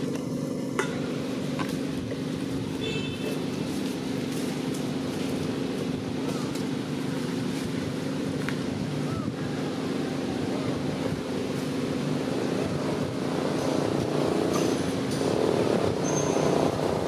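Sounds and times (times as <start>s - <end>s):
low motor drone: 0.0s - 17.0s
wind on microphone: 12.3s - 17.0s.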